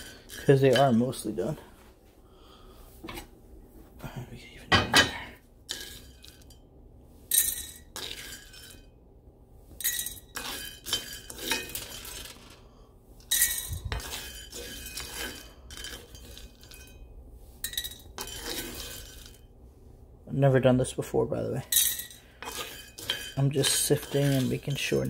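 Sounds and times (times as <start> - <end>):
coffee beans rattling in skillet: 0.0 - 1.3, 5.7 - 6.6, 7.3 - 8.8, 9.8 - 12.6, 13.2 - 19.5, 21.7 - 25.0.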